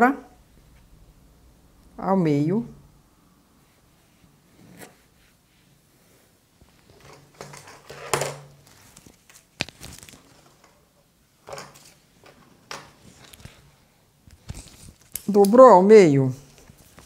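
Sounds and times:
fabric rustling: 0:03.6 - 0:15.4.

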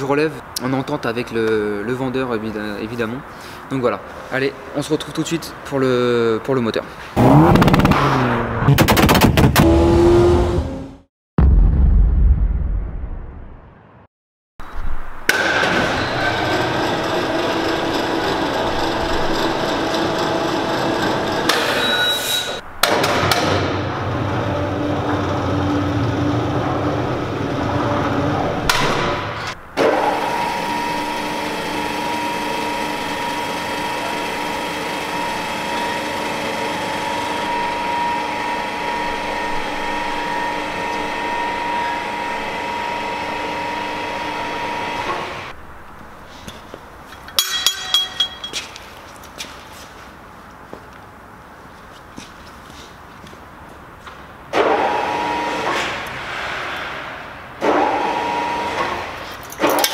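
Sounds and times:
crane motors whining: 0:15.3 - 0:22.2, 0:23.8 - 0:45.6, 0:54.6 - 0:56.6, 0:57.6 - 0:59.9.

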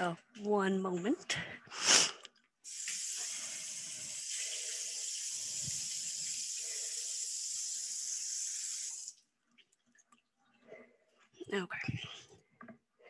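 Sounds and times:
faucet running water: 0:02.6 - 0:09.3.

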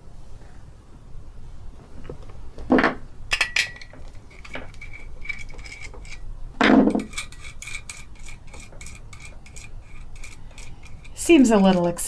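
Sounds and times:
metal parts clinking: 0:03.3 - 0:06.3, 0:06.9 - 0:12.0.

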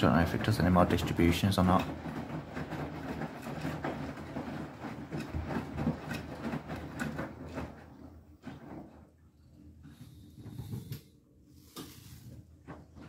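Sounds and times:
laundry sloshing in drum: 0:00.0 - 0:13.0
washing machine motor hum: 0:00.0 - 0:13.0.

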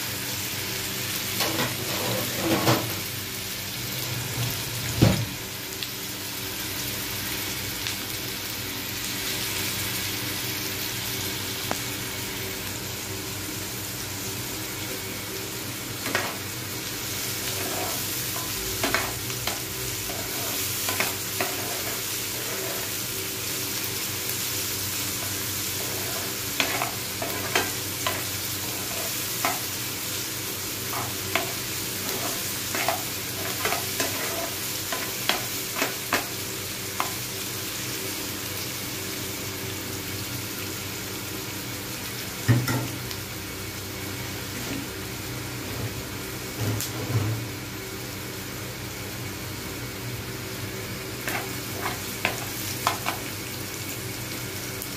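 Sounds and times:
onions sizzling in oil: 0:00.0 - 0:54.9
spoon scraping a pan: 0:17.3 - 0:23.0, 0:25.2 - 0:29.7, 0:30.9 - 0:36.3, 0:51.2 - 0:53.2.

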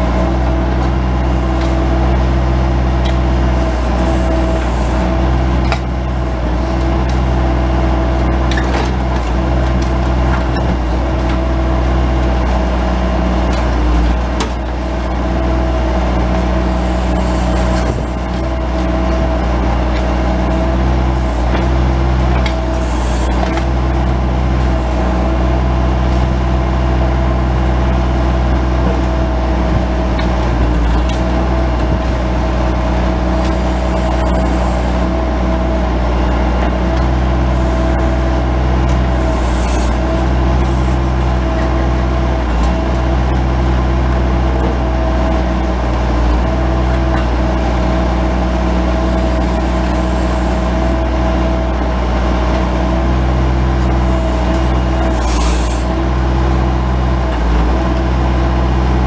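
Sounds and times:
diesel engine running: 0:00.0 - 0:59.0
hydraulic whine: 0:00.0 - 0:59.0.

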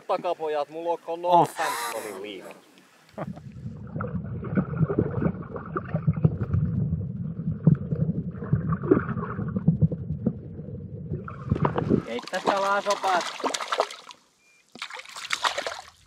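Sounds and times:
muffled underwater water movement: 0:02.2 - 0:13.6.

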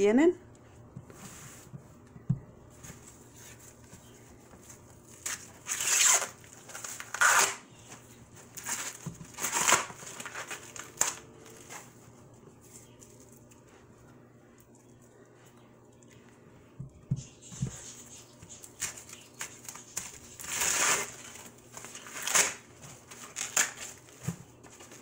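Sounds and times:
corn husks ripping: 0:05.0 - 0:07.7, 0:08.5 - 0:11.9, 0:18.6 - 0:24.2.

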